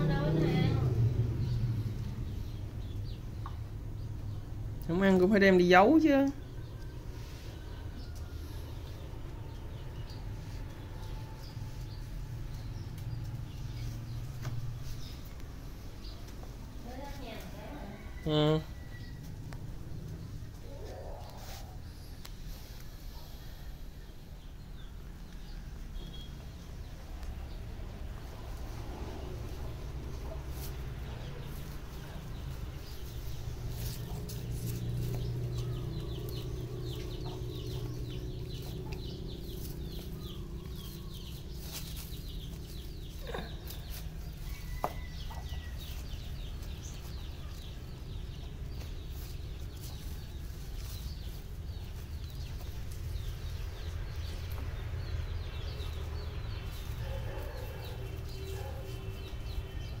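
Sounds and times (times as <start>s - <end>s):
dog scraping soil and leaves: 20.9s - 23.0s, 28.4s - 60.0s.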